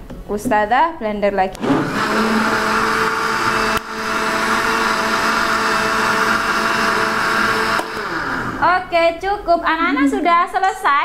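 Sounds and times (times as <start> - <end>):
blender click: 1.5 - 8.6
electric blender running: 1.5 - 8.9.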